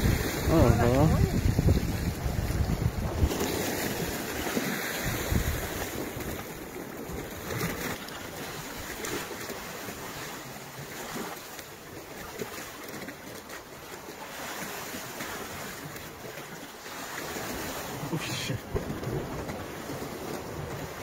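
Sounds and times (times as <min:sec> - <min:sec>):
wind buffeting microphone: 0:00.0 - 0:09.2, 0:18.6 - 0:21.0
surf against rocky shore: 0:00.0 - 0:21.0.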